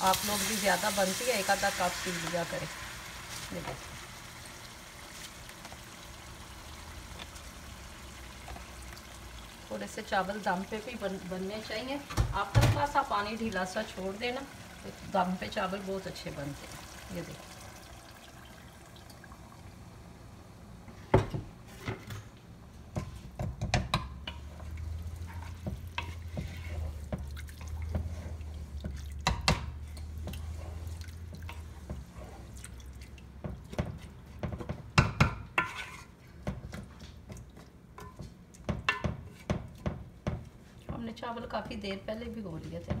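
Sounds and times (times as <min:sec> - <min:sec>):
wooden spoon stirring in a pot: 0:22.8 - 0:43.0
liquid sloshing: 0:24.7 - 0:29.3
spoon knocking against pot: 0:38.0 - 0:40.4.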